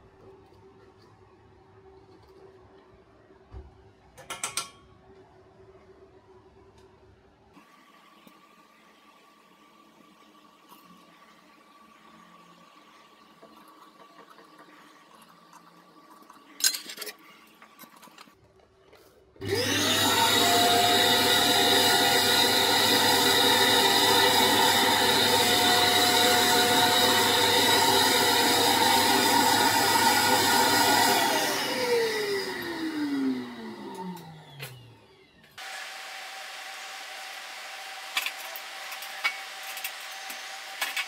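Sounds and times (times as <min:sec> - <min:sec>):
vacuum cleaner whining: 0:19.4 - 0:41.0.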